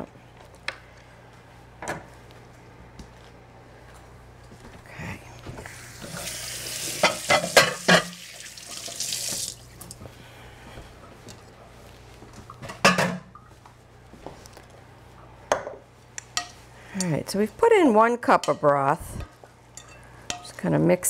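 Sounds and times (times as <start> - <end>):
faucet running into sink: 6.1 - 9.6.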